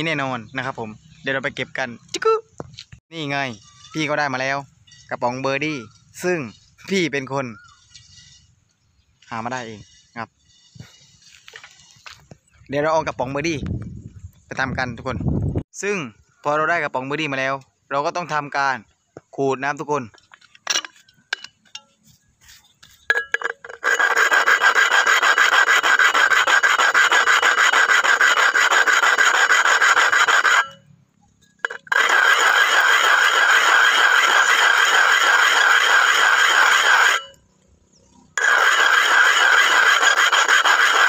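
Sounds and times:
metal can scraping on asphalt: 0:07.8 - 0:08.6, 0:22.4 - 0:37.4, 0:38.3 - 0:41.0.

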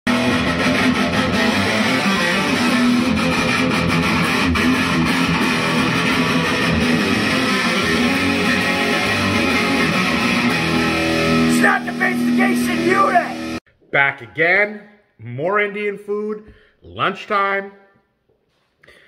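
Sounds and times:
electric guitar music: 0:00.1 - 0:13.6.

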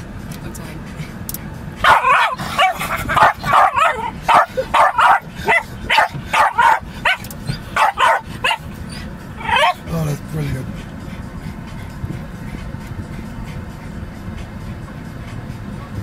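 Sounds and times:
dog barking rapidly: 0:01.8 - 0:08.8, 0:09.4 - 0:09.8.

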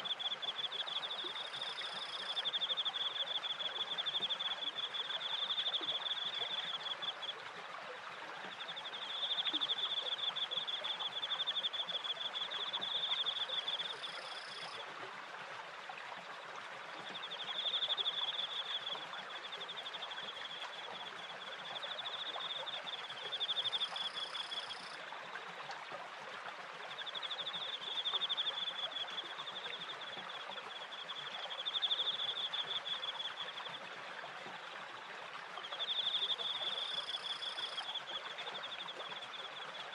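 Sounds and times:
crickets trilling: 0:00.0 - 0:07.2.

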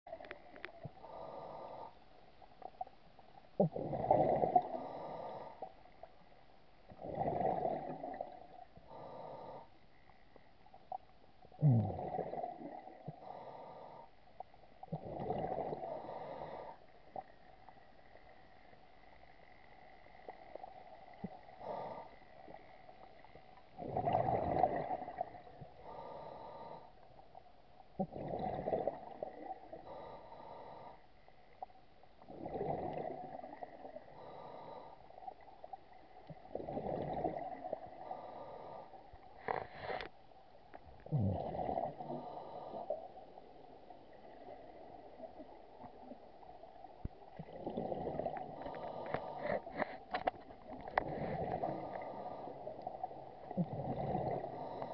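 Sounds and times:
exhaled bubbles rushing: 0:23.8 - 0:25.4
diver inhaling through regulator: 0:47.8 - 0:53.0, 0:53.6 - 0:54.9.

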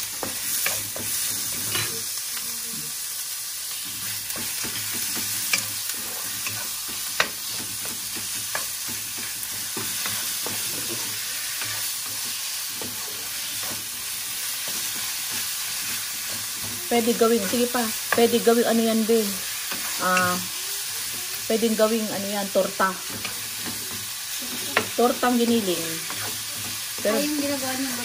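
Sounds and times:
meat sizzling in a wok: 0:00.0 - 0:28.0
utensils clicking against pan: 0:00.1 - 0:02.5, 0:03.7 - 0:14.0, 0:21.8 - 0:28.0
spatula scraping a pan: 0:00.1 - 0:03.0, 0:03.7 - 0:21.5, 0:22.6 - 0:28.0.

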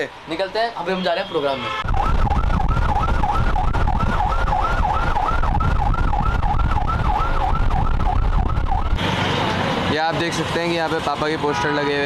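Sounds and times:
road and wind rumble: 0:00.0 - 0:12.0
warbling electronic siren: 0:01.8 - 0:09.0.

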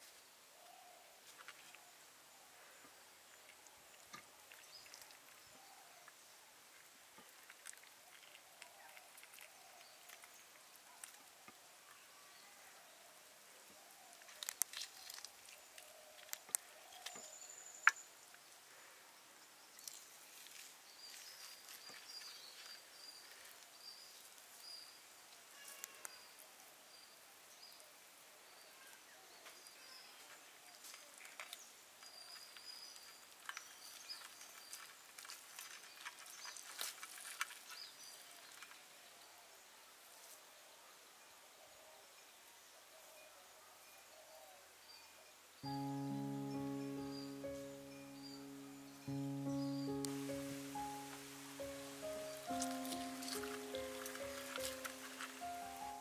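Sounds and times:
high chirp: 0:45.6 - 0:56.0.

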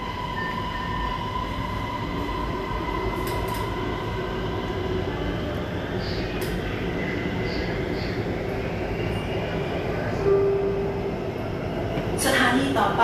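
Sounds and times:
metro train rumble: 0:00.0 - 0:13.0.

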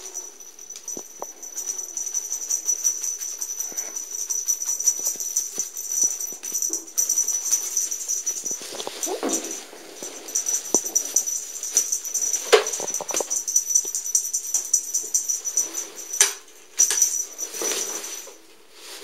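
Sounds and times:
cat toy jingling and rattling: 0:00.0 - 0:19.0.

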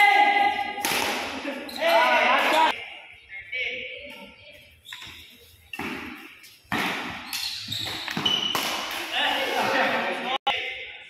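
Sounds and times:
rackets striking shuttlecock: 0:05.7 - 0:09.1.

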